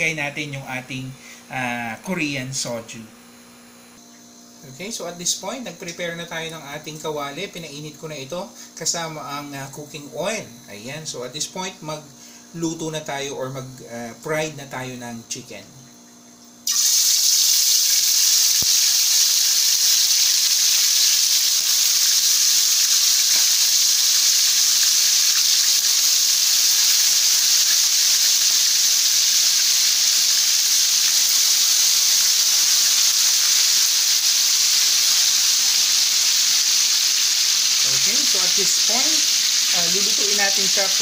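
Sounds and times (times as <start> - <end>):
chicken sizzling in hot oil: 16.2 - 41.0.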